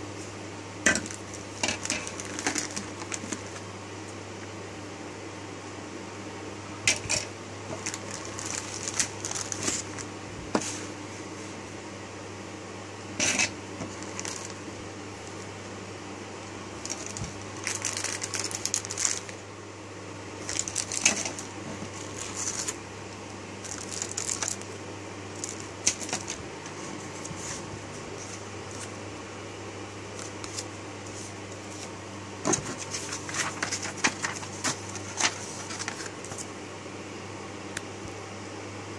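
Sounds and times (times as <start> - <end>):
steady low hum: 0.0 - 38.9
plastic bags crinkling: 0.9 - 3.6, 6.9 - 10.1, 13.8 - 14.6, 16.8 - 19.4, 20.4 - 22.8, 23.6 - 24.7, 25.3 - 26.4, 32.5 - 36.4.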